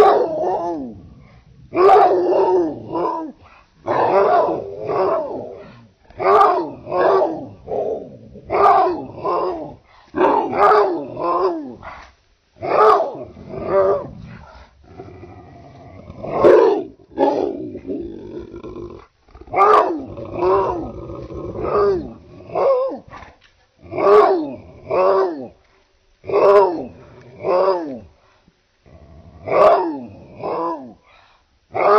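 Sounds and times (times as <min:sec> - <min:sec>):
big dog barking: 0:00.0 - 0:14.7, 0:16.1 - 0:18.1, 0:19.4 - 0:23.3, 0:23.9 - 0:25.6, 0:26.3 - 0:28.1, 0:29.4 - 0:31.0
dog growling: 0:12.6 - 0:23.2, 0:28.8 - 0:31.0.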